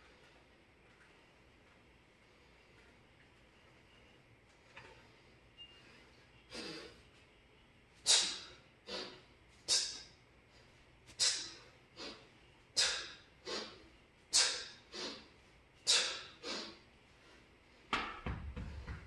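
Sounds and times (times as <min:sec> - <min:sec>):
sharp hissing breaths: 0:08.0 - 0:10.2, 0:11.1 - 0:17.5.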